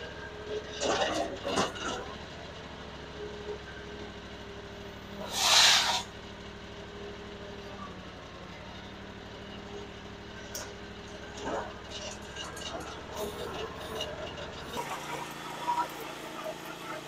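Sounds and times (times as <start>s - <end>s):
loader engine running: 0.0s - 17.0s
loud hiss: 5.2s - 6.1s.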